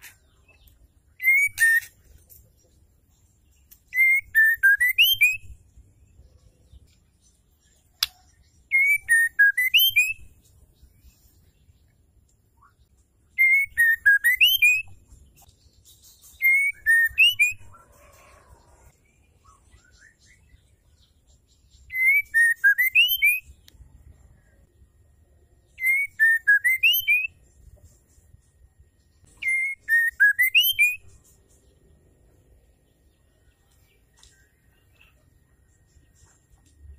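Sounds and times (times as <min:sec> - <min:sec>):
bird singing whistled phrase: 0:01.2 - 0:01.9, 0:03.9 - 0:05.5, 0:08.0 - 0:10.3, 0:13.4 - 0:14.9, 0:16.4 - 0:17.6, 0:21.9 - 0:23.5, 0:25.8 - 0:27.3, 0:29.4 - 0:31.1.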